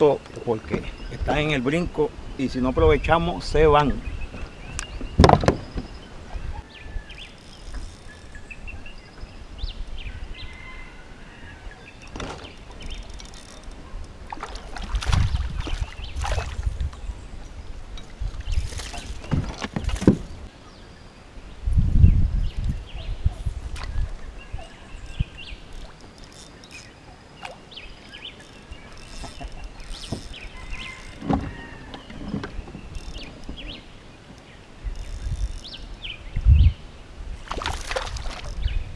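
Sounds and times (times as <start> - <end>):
water sloshing against boat hull: 12.0 - 20.5, 37.4 - 38.7.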